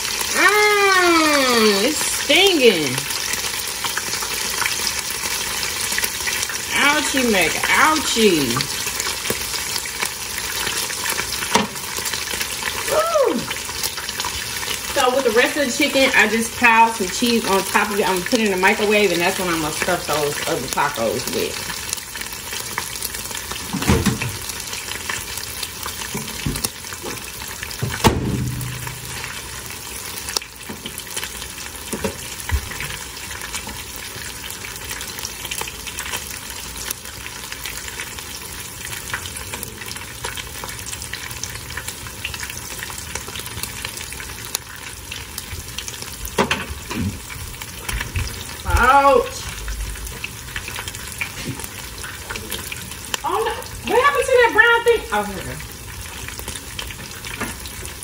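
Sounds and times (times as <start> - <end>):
food sizzling in oil: 0.0 - 58.0.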